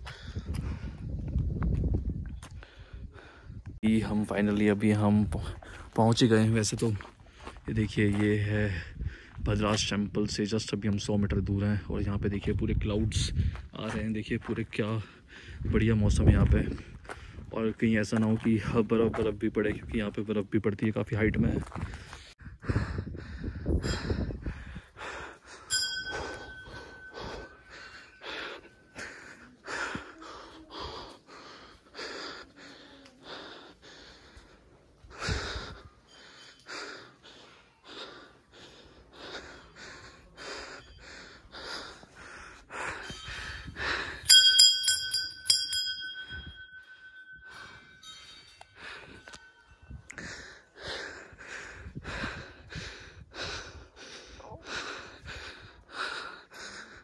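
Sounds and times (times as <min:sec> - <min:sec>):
heavy rapid breathing: 0:15.0 - 0:15.8, 0:21.6 - 0:44.3, 0:46.2 - 0:49.4, 0:50.0 - 0:57.0
metal bell ringing: 0:25.7 - 0:28.2, 0:43.0 - 0:50.1.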